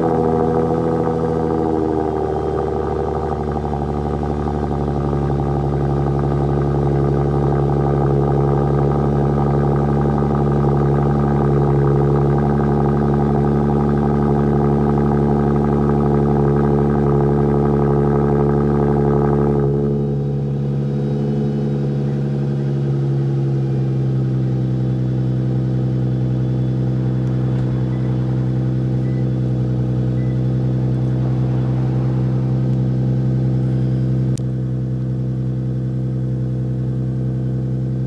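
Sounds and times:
car engine idling: 0.0s - 38.0s.

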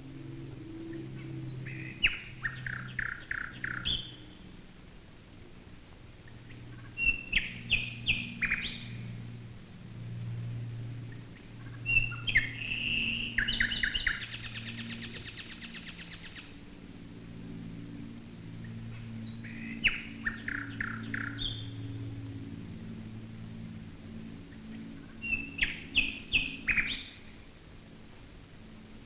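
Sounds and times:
bomber engines droning overhead: 0.0s - 29.0s
nightingale singing: 0.9s - 4.5s, 6.5s - 9.0s, 11.1s - 16.5s, 18.7s - 22.1s, 24.5s - 27.4s.

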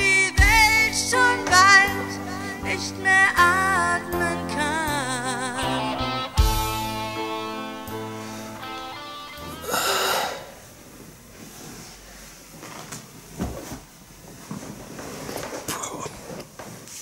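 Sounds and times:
song with guitar: 0.0s - 10.2s
loud breathy rush: 9.6s - 10.8s
clothes rustling on sofa: 10.6s - 17.0s.

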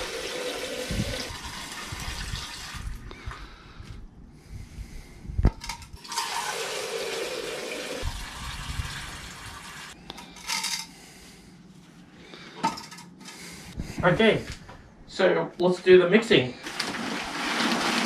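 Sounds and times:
water running into plastic jug: 0.0s - 3.0s, 6.0s - 9.9s, 16.6s - 18.0s.

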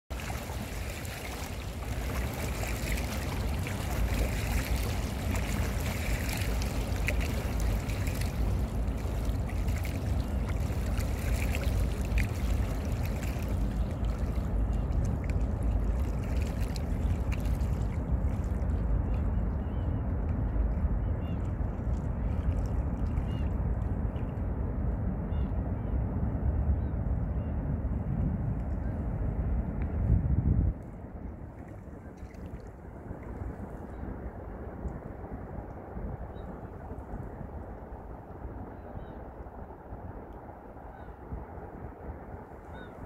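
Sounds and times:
waves splashing against rocks: 0.1s - 13.6s
steady low rumble: 0.1s - 43.0s.

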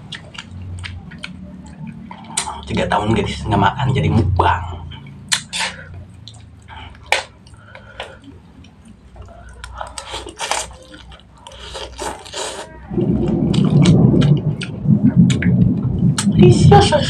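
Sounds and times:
lip smacks: 0.1s - 2.7s, 5.3s - 12.7s
loud low rumbling: 12.8s - 17.0s.

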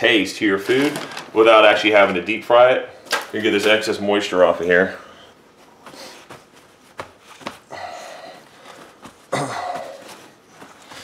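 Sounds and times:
paper towels rustling: 5.5s - 11.0s.

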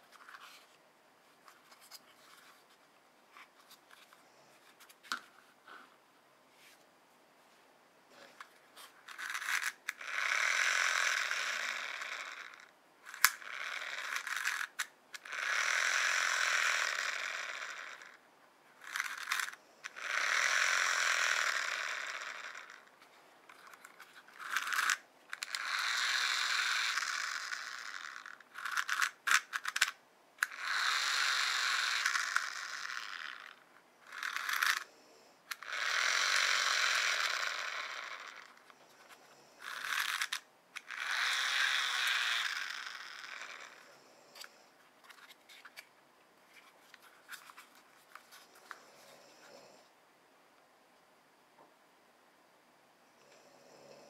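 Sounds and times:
toy fan whirring: 8.2s - 18.2s, 18.8s - 45.9s.

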